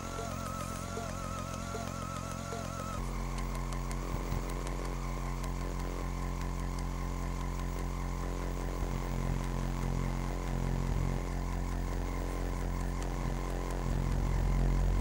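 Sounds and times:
small electric motor buzzing: 0.0 - 15.0.

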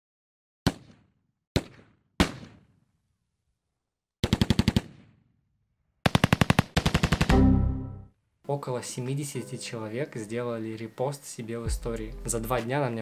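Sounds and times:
single gunshots: 0.6 - 2.7
machine-gun fire burst: 6.0 - 7.4.

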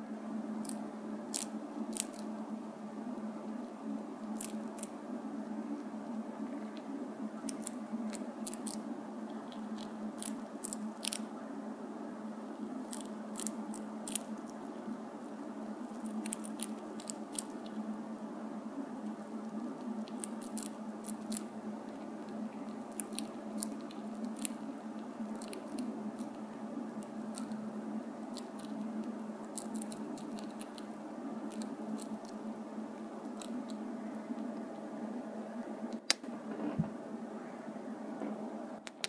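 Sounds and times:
steady low hum: 0.0 - 39.0
gerbil nibbling crunchy clicks: 0.6 - 2.4, 4.2 - 5.0, 6.6 - 11.3, 12.8 - 14.7, 15.8 - 18.0, 19.0 - 32.5, 33.2 - 34.9.

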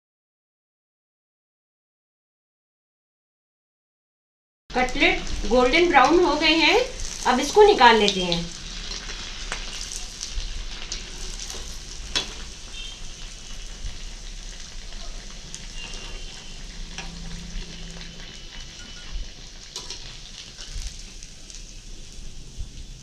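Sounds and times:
cutlets deep-frying in oil: 4.7 - 23.0
steel skimmer stirring: 4.8 - 23.0.

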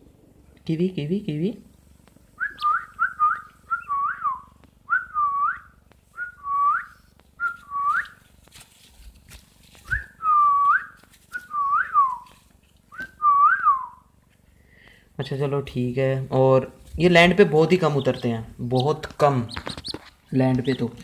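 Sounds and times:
pigeon chick whistled calls: 2.4 - 8.2, 9.9 - 12.3.

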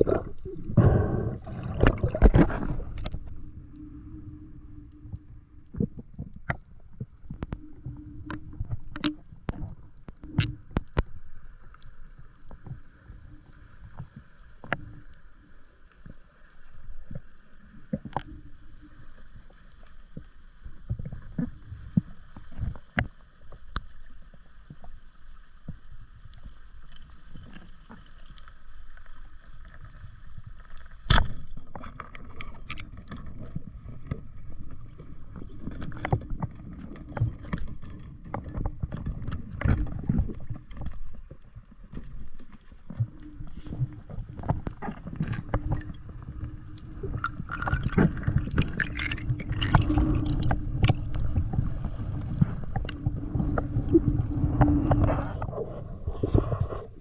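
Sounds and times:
underwater clicks and knocks: 0.0 - 3.6, 5.0 - 11.3, 20.1 - 24.0, 30.6 - 56.9
underwater rumble of moving water: 0.0 - 57.0.

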